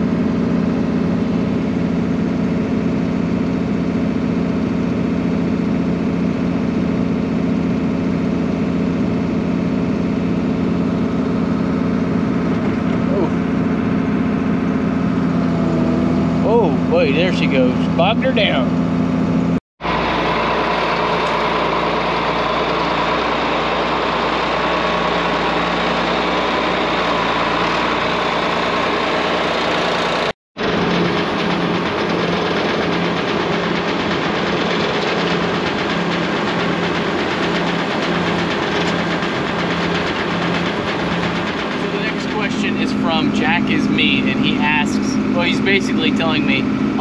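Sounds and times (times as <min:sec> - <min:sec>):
grinder mill roaring: 0:00.0 - 0:47.0
tractor diesel engine under load: 0:00.0 - 0:47.0.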